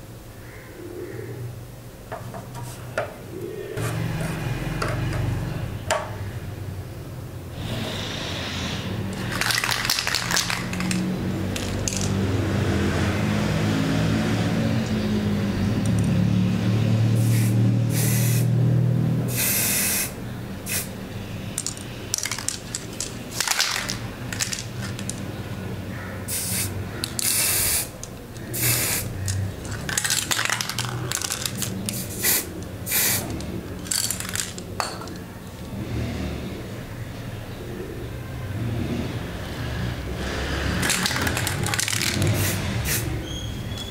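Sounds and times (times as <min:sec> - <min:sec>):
aerosol spray can hissing: 0:17.2 - 0:18.5, 0:19.3 - 0:20.9, 0:26.3 - 0:29.2, 0:31.6 - 0:33.4, 0:40.8 - 0:43.1.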